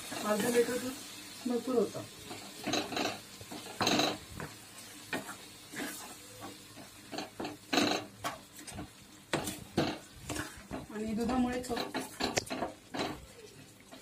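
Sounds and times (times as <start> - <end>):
faint milk sizzle: 0.0 - 14.0
spatula scraping pan: 2.2 - 13.2.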